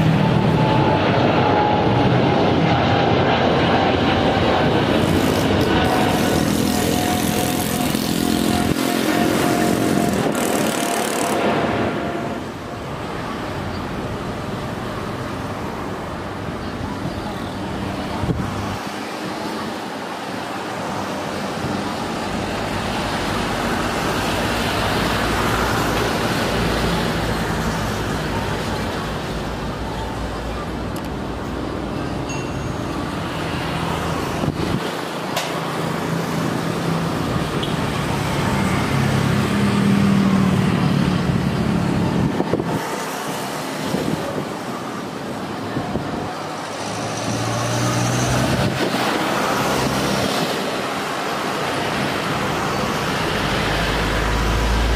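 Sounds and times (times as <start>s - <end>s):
jet engines taxiing: 0.0s - 54.9s.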